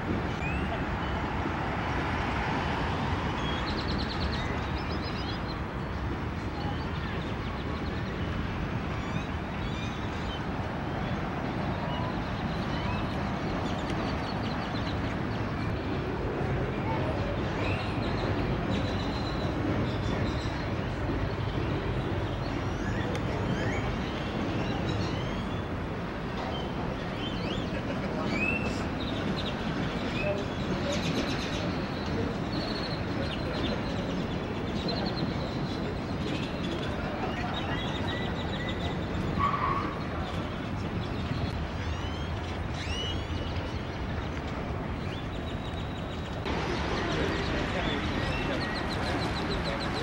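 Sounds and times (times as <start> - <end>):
distant traffic rumble: 0.0 - 50.0
birds chirping: 17.1 - 50.0.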